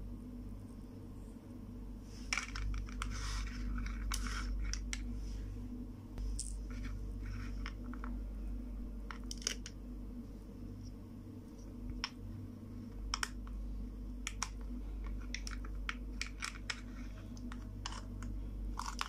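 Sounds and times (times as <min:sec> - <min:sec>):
steady low hum: 0:00.0 - 0:19.0
plastic toys clicking and scraping: 0:02.3 - 0:05.0, 0:14.3 - 0:19.0.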